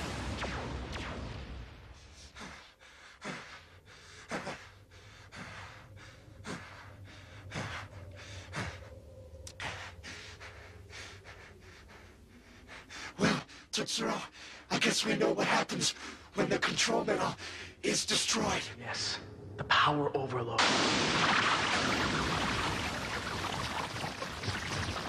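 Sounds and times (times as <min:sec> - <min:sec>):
man panting heavily: 0:02.0 - 0:14.7.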